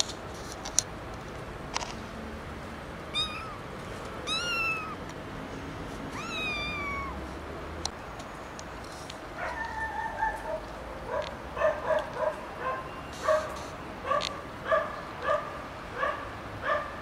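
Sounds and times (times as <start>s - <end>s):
kitten mewing: 3.1s - 5.0s, 6.1s - 7.2s.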